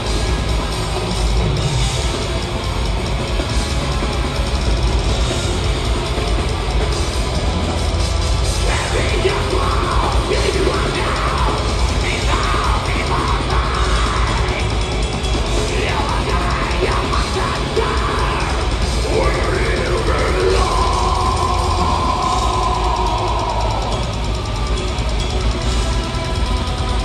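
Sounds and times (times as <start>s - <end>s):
distorted guitars: 0.0s - 27.0s
drums: 0.0s - 27.0s
harsh screamed vocals: 8.4s - 25.8s.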